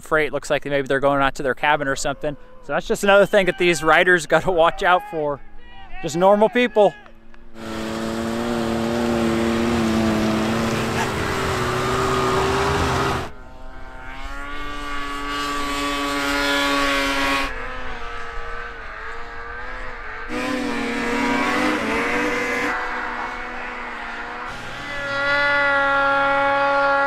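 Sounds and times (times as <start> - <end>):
snowmobile engines whining past: 7.5 - 27.0.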